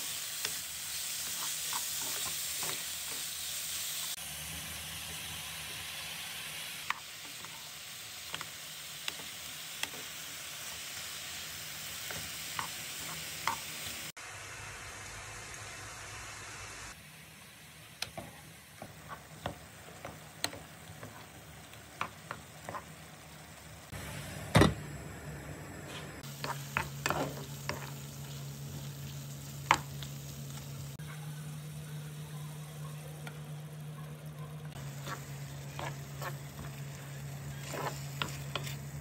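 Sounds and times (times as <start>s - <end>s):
light sizzle in frying pan: 0.0s - 24.3s, 26.0s - 39.0s
spoon knocking and scraping pan: 12.0s - 13.7s, 18.1s - 23.0s, 26.2s - 28.4s, 34.8s - 36.9s, 37.5s - 38.9s.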